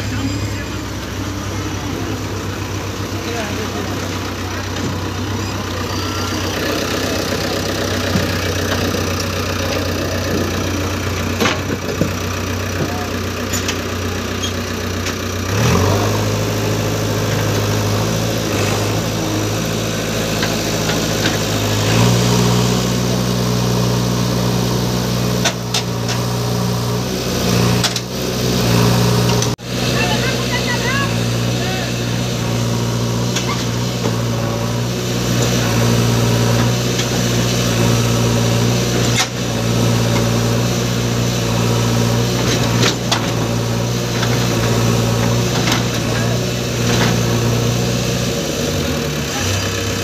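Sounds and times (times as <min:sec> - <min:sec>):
diesel engine revving: 0:00.0 - 0:50.0.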